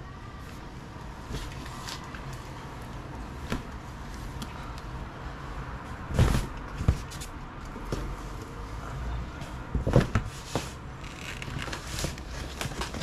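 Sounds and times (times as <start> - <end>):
knocks and thumps of box handling: 6.1 - 7.3, 9.8 - 10.8.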